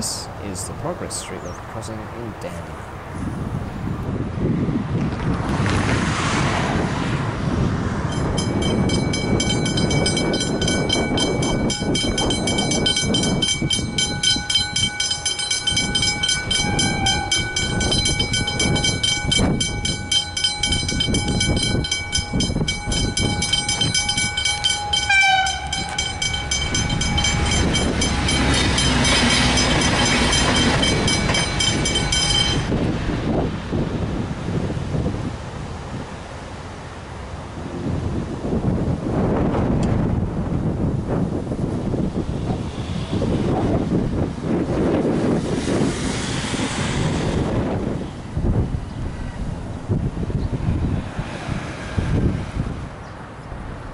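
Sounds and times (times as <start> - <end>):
train rumble: 4.9 - 53.9
level crossing bells ringing: 8.1 - 32.8.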